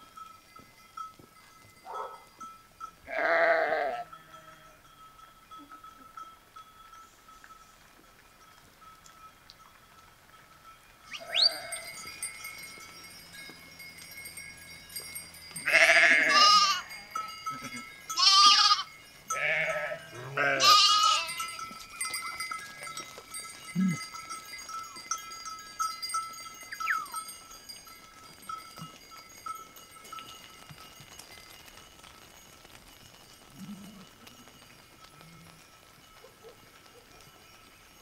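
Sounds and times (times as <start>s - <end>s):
thin bell-like ringing: 0.0s - 38.0s
sheep bleating: 3.1s - 4.6s, 11.1s - 11.9s, 15.6s - 21.6s.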